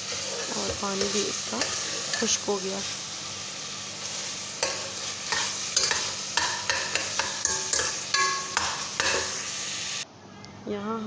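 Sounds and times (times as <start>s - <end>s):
meat sizzling in a pot: 0.0s - 10.0s
metal spoon scraping a pot: 4.6s - 9.4s.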